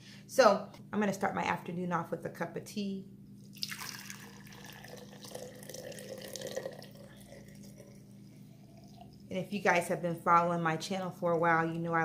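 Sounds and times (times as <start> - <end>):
water pouring into a glass jar: 3.5 - 9.3.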